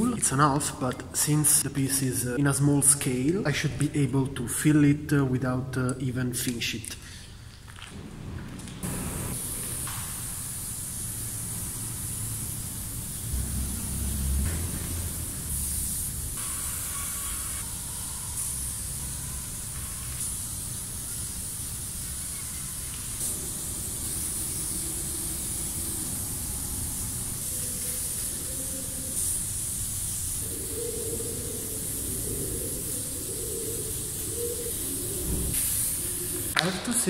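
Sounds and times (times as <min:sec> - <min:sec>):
aerosol spray can hissing: 0:08.8 - 0:36.7.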